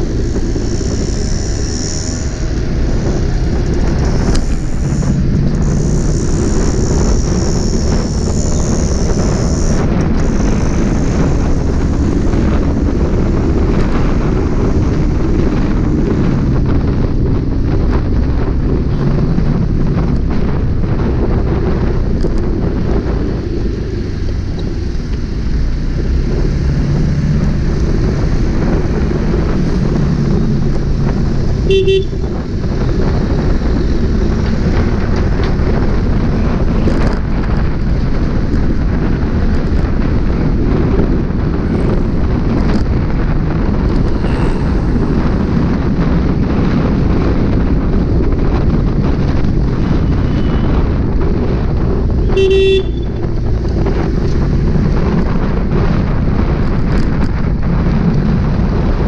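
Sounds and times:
motorbike engine and road noise: 0.0 - 59.0
vehicle horn honk: 31.6 - 32.4, 49.8 - 50.8, 52.2 - 53.2.

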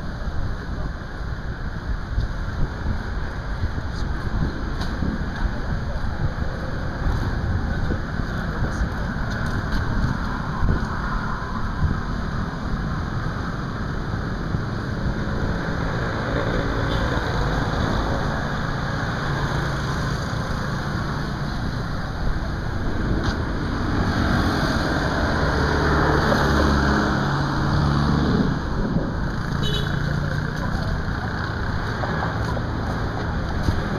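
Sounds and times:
road traffic rumble: 0.0 - 33.9
vehicle passing close by: 22.7 - 33.9.

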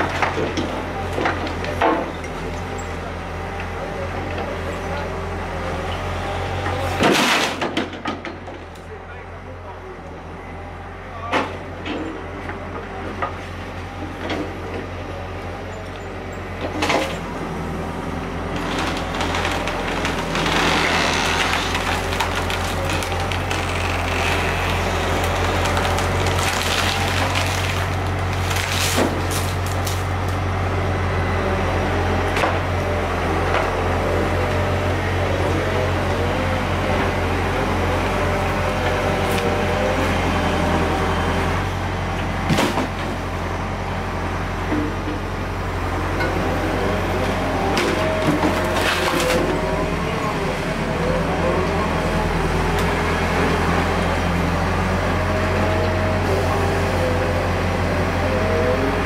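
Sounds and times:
diesel engines running: 0.0 - 59.0
rubble and wood crashing down: 18.6 - 30.0.

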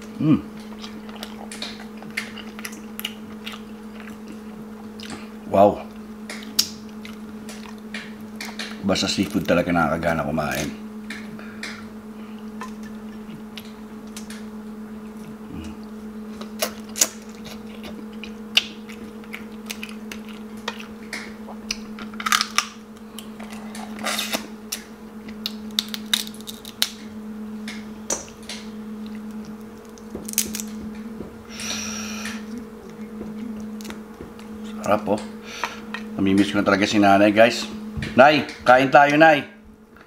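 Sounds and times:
chewing: 0.0 - 9.6, 12.4 - 26.9, 28.2 - 35.0
steady low hum: 0.0 - 40.0
crab shell cracking: 15.8 - 23.3, 24.3 - 27.1, 28.5 - 31.0, 32.2 - 34.5.

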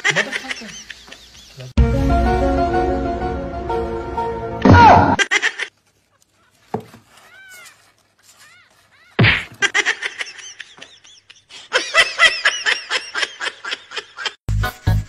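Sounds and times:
loud thump: 4.6 - 5.2
rapid high-pitched laughter: 5.2 - 5.8, 9.0 - 14.4.

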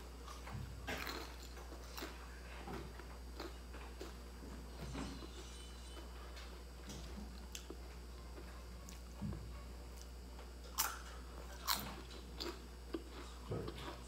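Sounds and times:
chewing crispy crackers: 0.2 - 4.2, 7.3 - 9.1, 9.9 - 14.0.

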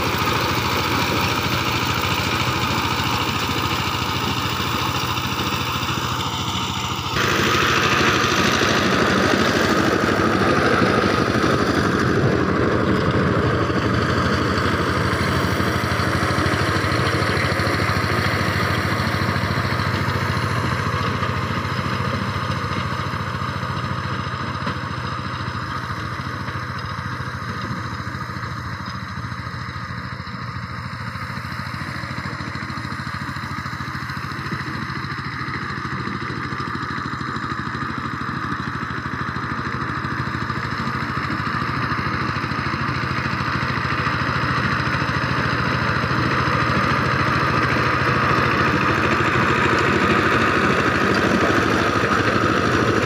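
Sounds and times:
rotary tines working dry soil: 0.0 - 53.0
tiller diesel engine running: 0.0 - 53.0.

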